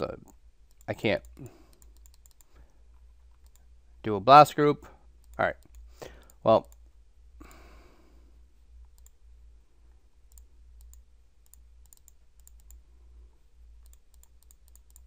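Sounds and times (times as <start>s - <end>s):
low steady hum: 0.0s - 15.0s
computer mouse clicks: 0.2s - 2.7s, 3.3s - 3.7s, 8.9s - 9.2s, 10.3s - 12.8s, 13.8s - 15.0s.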